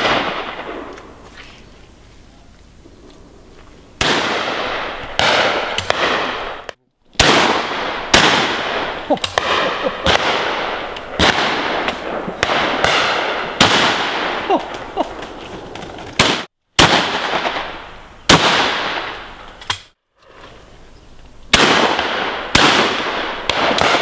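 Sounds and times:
rolling echo of shots: 0.0s - 1.0s, 4.0s - 15.3s, 16.1s - 19.3s, 21.5s - 24.0s
shotguns firing: 0.0s - 1.0s, 4.0s - 15.4s, 16.1s - 19.9s, 21.5s - 24.0s.

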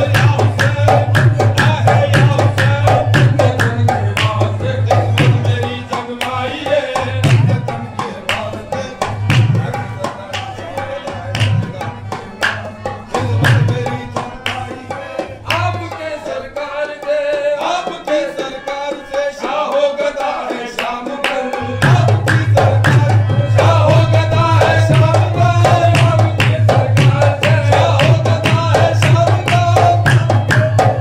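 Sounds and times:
qawwali music: 0.0s - 31.0s
tabla drumming: 0.0s - 31.0s.

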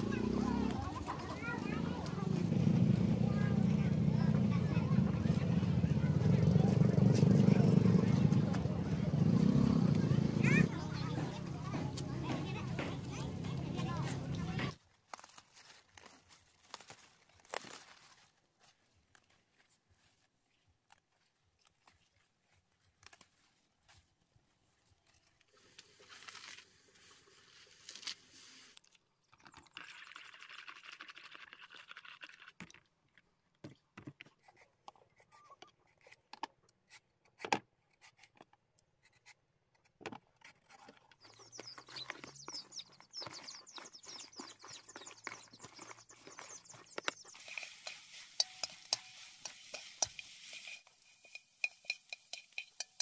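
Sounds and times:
spoon scraping plastic bowls: 40.4s - 53.0s
greens sizzling in a wok: 47.2s - 53.0s.

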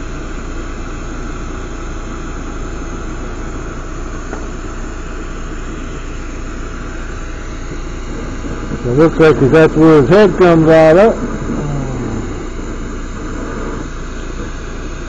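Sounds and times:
constant low hum: 0.0s - 15.0s
glass torch hissing: 6.9s - 14.5s.

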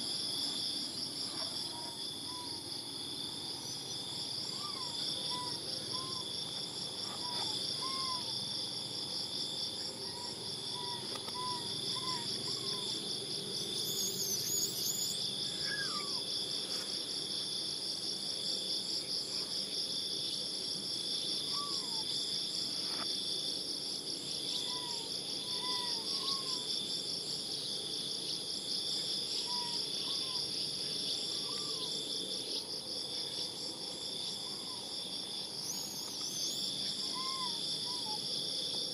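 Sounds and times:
high-pitched insect chorus: 0.0s - 38.9s
faint chirping calls: 13.7s - 16.3s, 35.6s - 38.2s.

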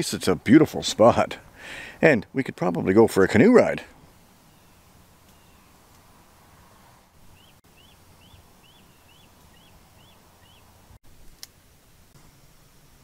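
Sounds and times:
bird calling: 4.4s - 10.8s.

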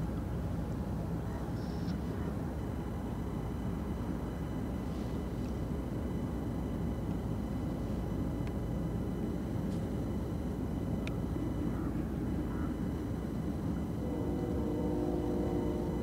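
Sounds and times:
faint high ticks: 11.0s - 11.2s.

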